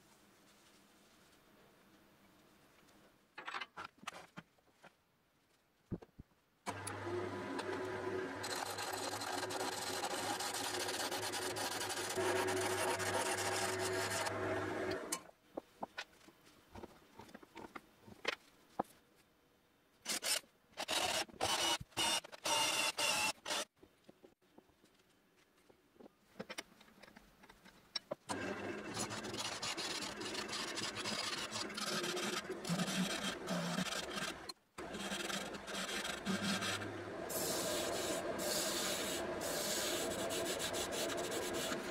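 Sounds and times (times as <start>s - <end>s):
cordless drill boring wood: 6.7s - 15.1s, 20.8s - 23.6s, 28.3s - 41.9s
gouge cutting spinning wood: 6.7s - 15.1s, 28.3s - 41.9s
wood lathe motor hum: 6.7s - 15.1s, 28.3s - 41.9s.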